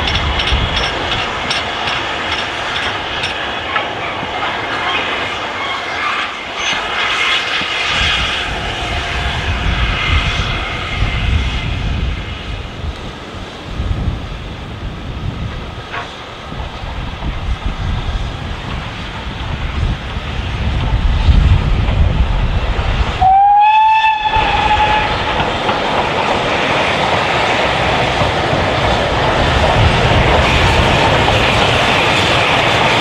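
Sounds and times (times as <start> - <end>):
steam train running: 0.0 - 33.0
locomotive whistle blast: 23.2 - 25.2.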